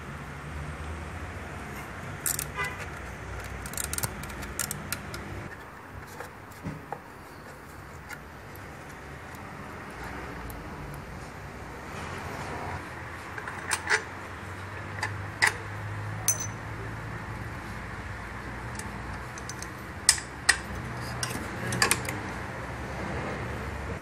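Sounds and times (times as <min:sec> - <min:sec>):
hand tools clinking on metal: 0:16.2 - 0:16.6.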